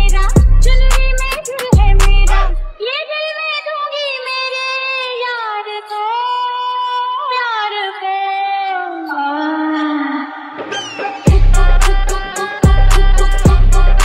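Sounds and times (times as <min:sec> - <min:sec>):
woman singing alone: 0:00.0 - 0:14.0.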